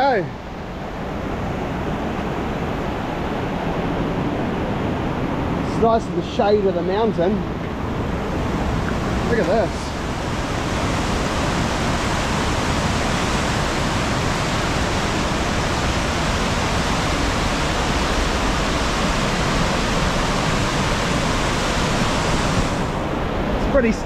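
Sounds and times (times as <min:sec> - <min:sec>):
river water rushing over weir: 0:07.1 - 0:24.0.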